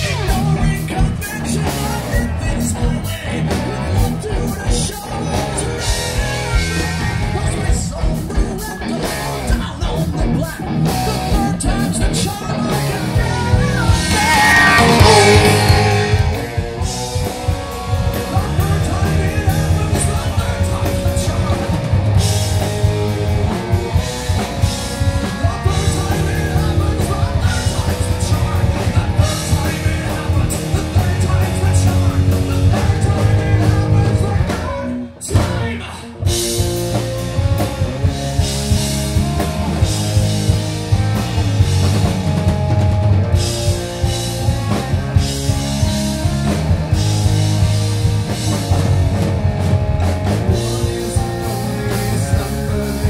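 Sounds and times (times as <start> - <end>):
person singing: 0.0 - 37.0, 50.5 - 53.0
bass guitar: 0.0 - 53.0
drum kit: 0.0 - 53.0
electric guitar: 0.0 - 53.0.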